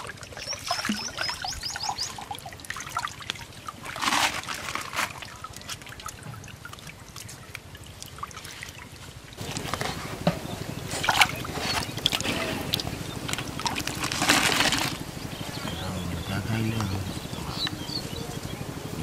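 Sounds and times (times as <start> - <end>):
muddy water splashing: 0.0 - 19.0
eel thrashing at water surface: 10.9 - 15.0.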